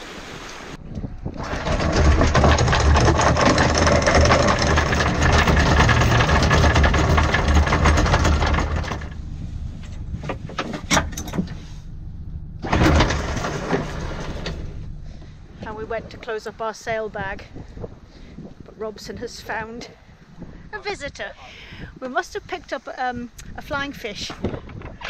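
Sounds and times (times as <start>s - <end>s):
windlass motor hum: 0.0s - 25.0s
anchor chain clattering: 1.4s - 11.6s.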